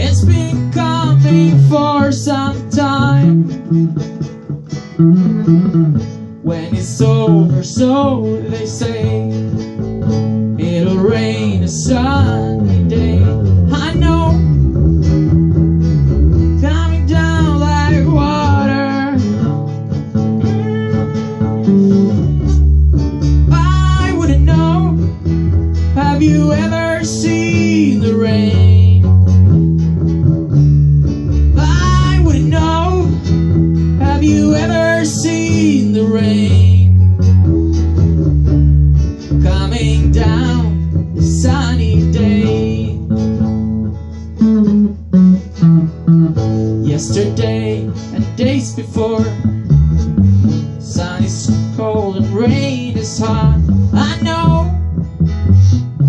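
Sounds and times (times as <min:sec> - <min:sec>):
person singing: 0:00.0 - 0:03.6, 0:06.4 - 0:09.4, 0:10.6 - 0:14.6, 0:16.6 - 0:19.6, 0:20.4 - 0:22.7, 0:23.4 - 0:25.2, 0:26.0 - 0:29.2, 0:31.6 - 0:33.2, 0:34.0 - 0:37.0, 0:39.3 - 0:43.1, 0:46.8 - 0:49.5, 0:50.8 - 0:54.9
guitars strumming chords: 0:00.0 - 0:56.0.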